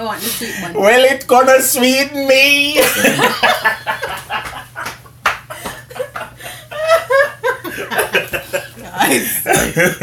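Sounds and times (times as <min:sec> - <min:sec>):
man and woman laughing: 0:02.8 - 0:10.0.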